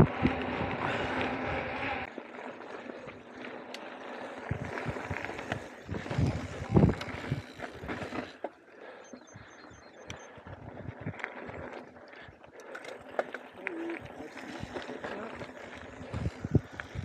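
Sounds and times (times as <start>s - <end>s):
bike tyre noise on dirt: 0.0s - 17.0s
bike knocks and rattles over bumps: 4.4s - 8.5s.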